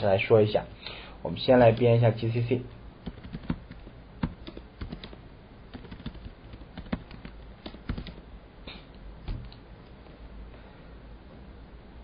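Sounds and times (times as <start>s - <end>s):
computer keyboard typing: 3.0s - 8.2s, 9.2s - 9.6s.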